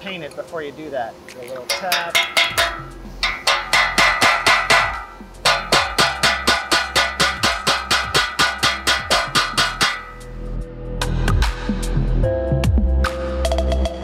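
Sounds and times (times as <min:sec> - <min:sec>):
metal-on-metal tapping with ringing: 0:01.4 - 0:10.3.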